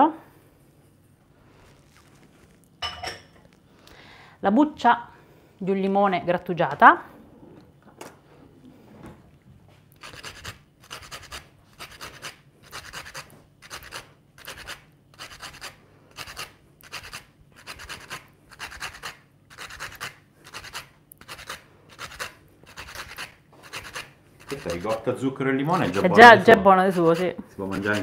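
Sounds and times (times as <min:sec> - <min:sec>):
lemon peel scraping on grater: 0:10.0 - 0:25.1, 0:26.8 - 0:28.0.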